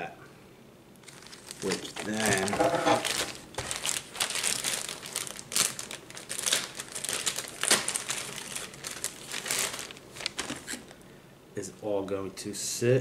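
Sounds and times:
plastic bag crinkling: 0:01.0 - 0:11.0.

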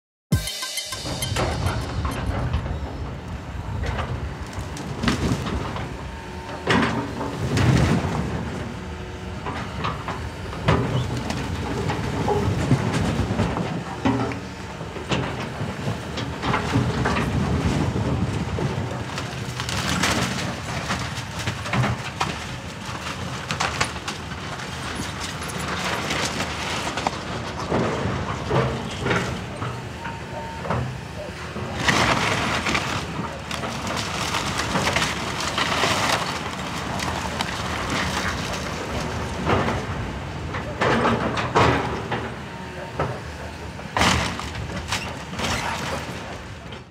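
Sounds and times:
excavator diesel engine running: 0:00.4 - 0:46.9
timber and brick debris crashing: 0:16.6 - 0:28.2, 0:31.7 - 0:41.9.

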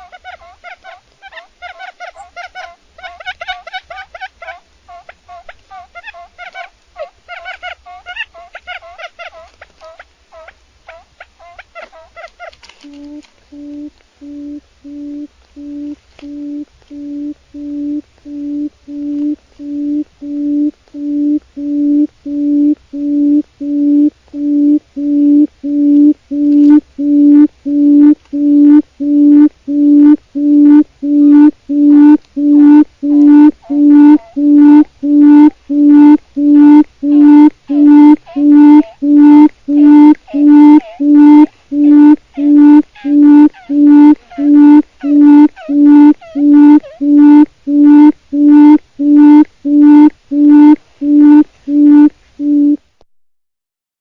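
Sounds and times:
quail chattering: 0:00.0 - 0:21.1, 0:30.7 - 0:52.0
quail hooting: 0:00.0 - 0:23.8, 0:28.7 - 0:52.6.

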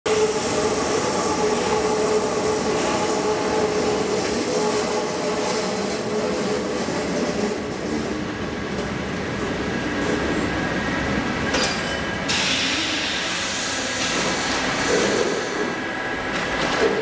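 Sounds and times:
train wheels rumbling on rails: 0:00.1 - 0:17.0
hiss: 0:12.3 - 0:15.8.

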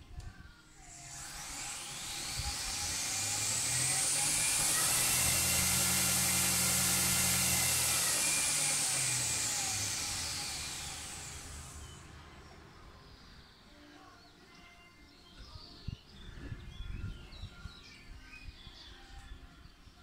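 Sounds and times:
belt grinder whine: 0:00.7 - 0:13.1.

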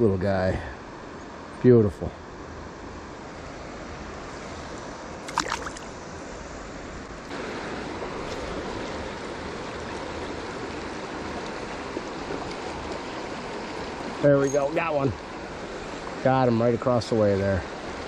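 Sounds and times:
river water rushing over rocks: 0:05.2 - 0:06.0, 0:07.3 - 0:18.0.

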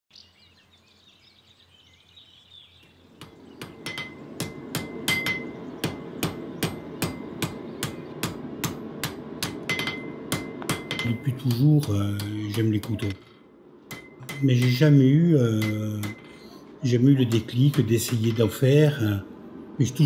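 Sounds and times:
faint bird chirps: 0:00.1 - 0:04.2
hammer striking on anvil: 0:03.2 - 0:13.3, 0:13.9 - 0:16.3, 0:17.3 - 0:18.7.

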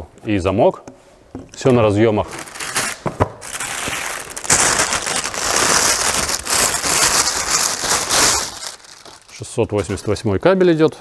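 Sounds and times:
plastic bag crinkling: 0:02.2 - 0:10.0.

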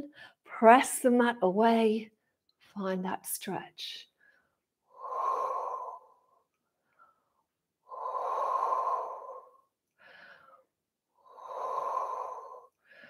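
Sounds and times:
woman breathing slowly: 0:04.2 - 0:13.0.

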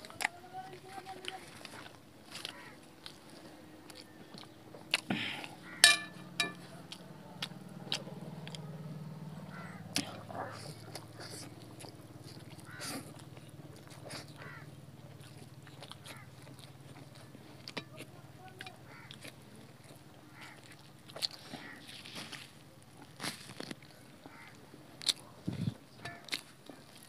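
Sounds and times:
low steady hum: 0:00.0 - 0:21.1
people chewing food: 0:00.0 - 0:27.0.

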